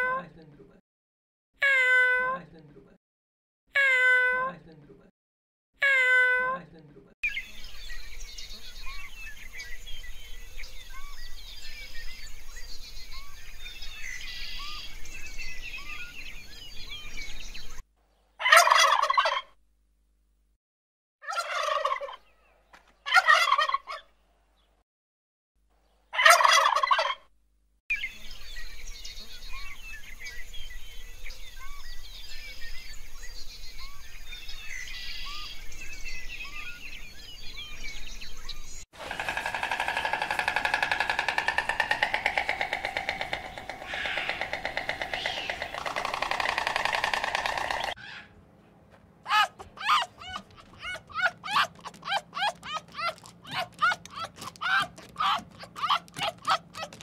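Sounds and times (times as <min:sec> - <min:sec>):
chicken calling loudly: 0:18.4 - 0:19.5, 0:21.2 - 0:22.2, 0:39.0 - 0:48.4, 0:49.2 - 0:57.0.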